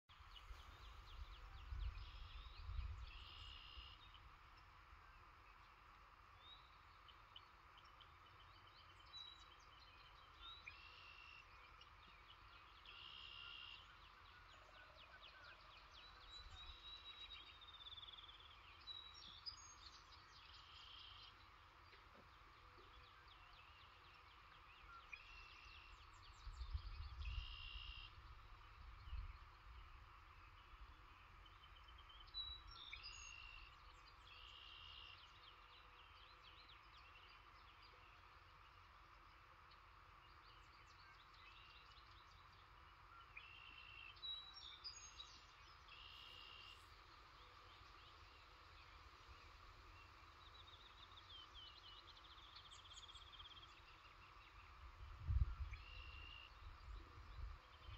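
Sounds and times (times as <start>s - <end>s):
faint background hum: 0.1s - 57.9s
bird trills: 27.1s - 28.3s.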